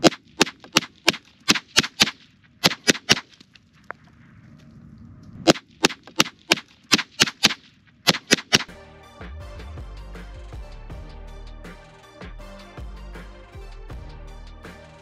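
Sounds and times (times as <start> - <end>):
rifle shots cracking: 0.0 - 3.4, 5.4 - 8.7.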